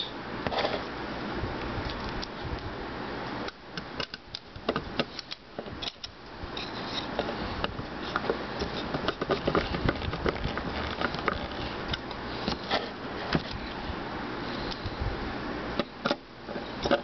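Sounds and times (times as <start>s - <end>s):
steady background hiss: 0.0s - 17.0s
screwdriver metallic clicks and scrapes: 4.0s - 7.4s.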